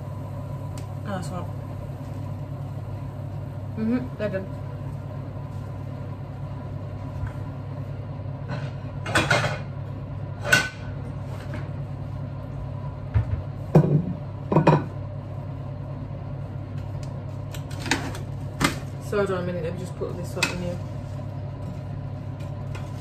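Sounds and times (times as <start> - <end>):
steady low hum: 0.0 - 23.0
baking tray and dishes clanking: 8.5 - 9.7.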